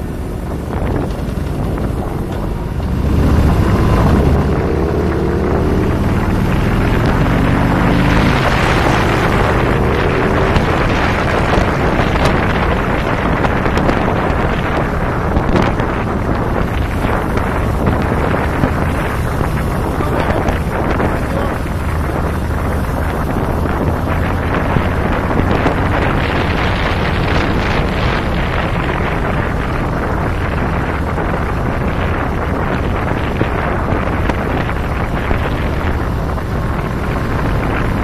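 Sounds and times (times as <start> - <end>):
motorcycle running: 0.0 - 38.0
road noise: 0.0 - 38.0
wind buffeting microphone: 0.0 - 38.0.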